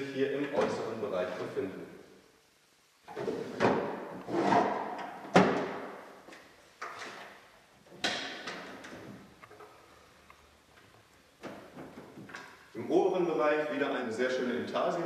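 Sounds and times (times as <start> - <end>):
wooden drawers sliding: 3.1 - 5.8.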